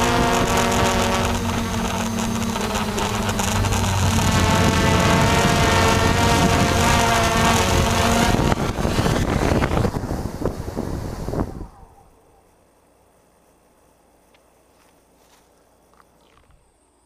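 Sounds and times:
wind on microphone: 0.0 - 12.1
drone propellers whirring: 0.0 - 12.4.

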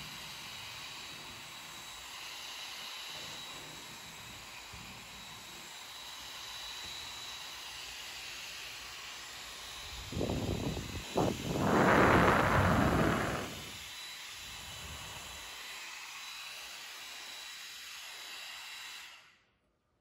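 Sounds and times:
small blower fan hissing: 0.0 - 16.0
airflow rushing into microphone: 10.0 - 13.8.

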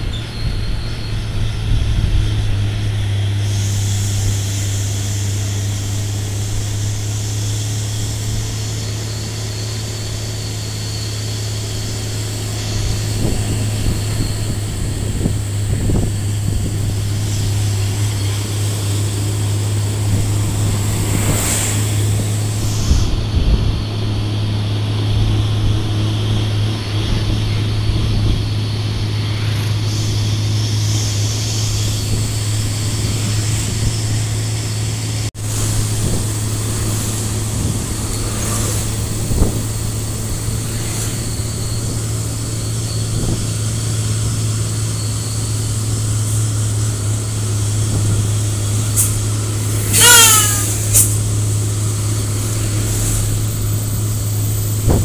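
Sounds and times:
road noise: 0.0 - 55.0
truck diesel engine droning: 0.0 - 55.0
loud pitched tone: 48.7 - 51.3.

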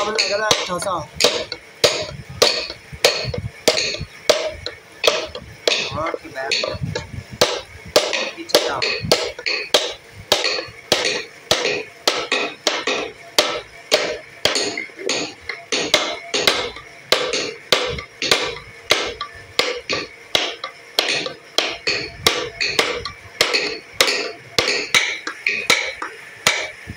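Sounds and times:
mallet tapping chisel into wood: 0.2 - 26.8.

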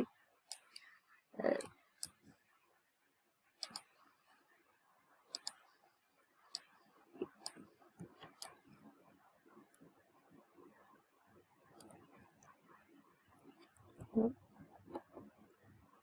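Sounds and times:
computer mouse clicking: 0.5 - 0.9, 3.6 - 4.0, 5.3 - 5.7, 6.5 - 9.0, 11.7 - 12.6.

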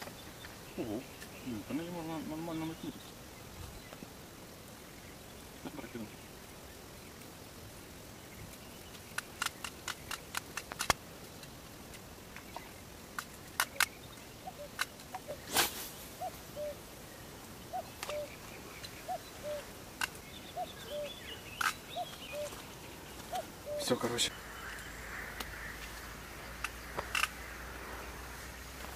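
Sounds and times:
sharp clicks: 8.5 - 12.0, 13.1 - 15.2, 20.0 - 20.3, 21.5 - 22.6, 26.6 - 27.4.

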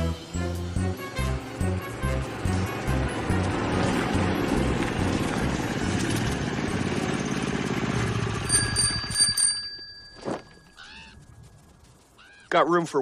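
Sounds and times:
minibike engine running: 0.8 - 12.2
small bell ringing: 8.4 - 11.5.

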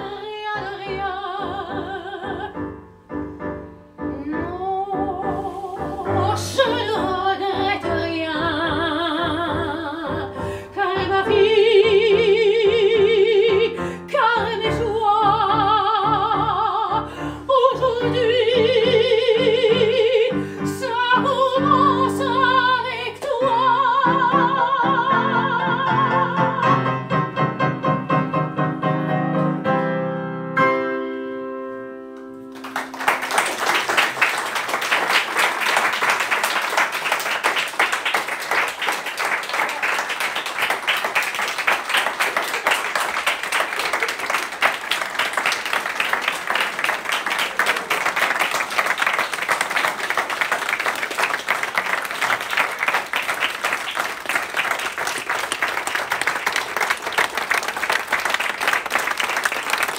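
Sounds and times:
soprano singing: 0.0 - 2.8, 4.0 - 27.2
piano accompaniment: 0.0 - 36.7
audience applauding: 32.5 - 59.9.

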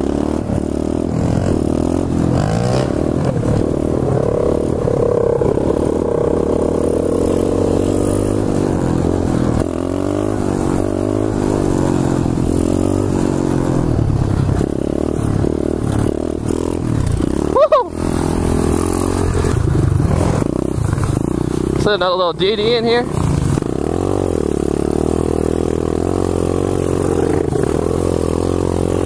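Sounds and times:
motorbike engine revving: 0.0 - 29.0.

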